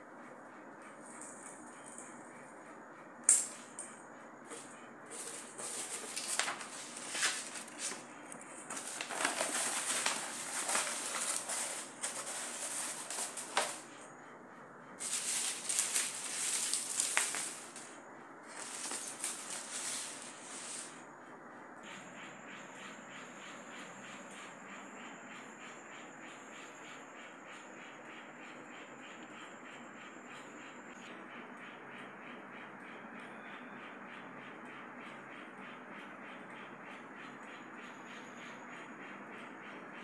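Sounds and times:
paper and fabric rustling: 4.5s - 13.9s, 15.0s - 17.9s, 18.5s - 20.9s.

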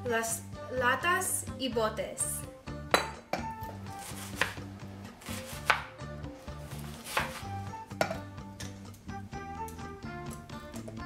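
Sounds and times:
background music: 0.0s - 11.0s
knife chopping on cutting board: 2.9s - 6.1s, 6.7s - 8.3s.

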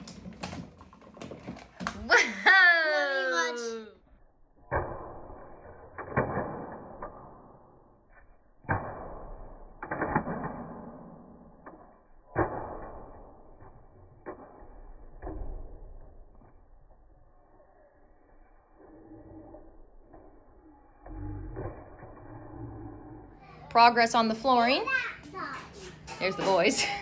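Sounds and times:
plastic ball rolling through cardboard tube: 0.0s - 2.1s.

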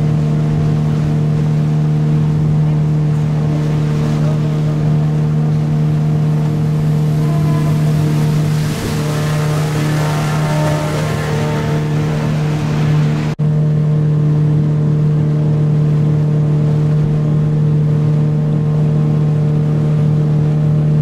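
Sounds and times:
water and wind hiss: 0.0s - 13.4s
motorboat engine humming: 0.0s - 21.0s.

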